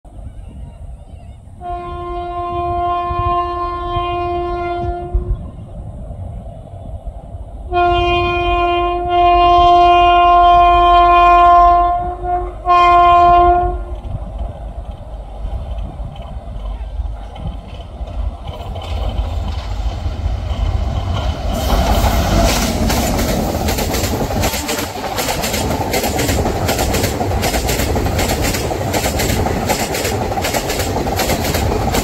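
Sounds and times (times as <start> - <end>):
locomotive horn: 1.6 - 5.4, 7.7 - 14.0, 24.4 - 25.0
low rumble: 13.7 - 26.7.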